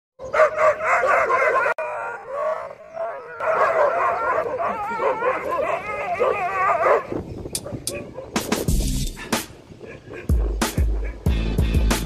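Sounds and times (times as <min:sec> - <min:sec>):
dogs barking and yelping: 0:00.2 - 0:11.4.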